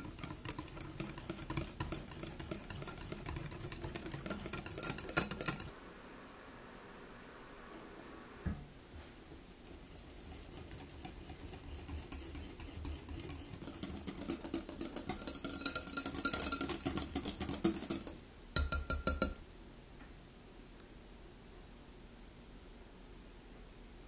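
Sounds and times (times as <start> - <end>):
utensil beating in glass bowl: 0.0 - 5.7, 10.0 - 19.4.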